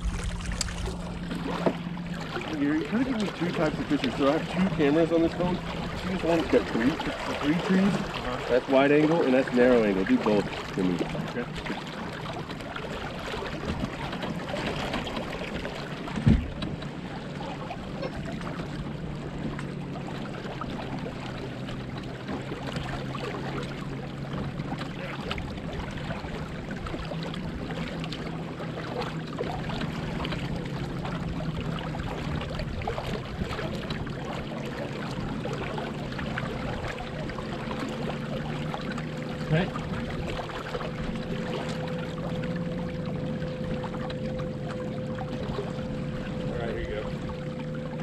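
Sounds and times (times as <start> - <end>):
steady low hum: 0.0 - 11.7, 24.5 - 48.0
water washing along boat hull: 0.0 - 48.0.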